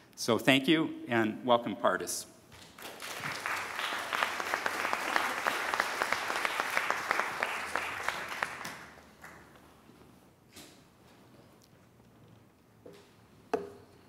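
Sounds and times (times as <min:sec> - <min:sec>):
audience applauding: 0:02.6 - 0:09.6.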